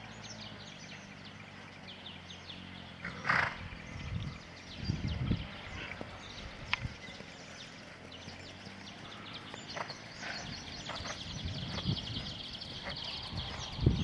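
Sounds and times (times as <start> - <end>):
birds twittering: 0.0 - 14.0
hooves thudding on sand: 4.2 - 14.0.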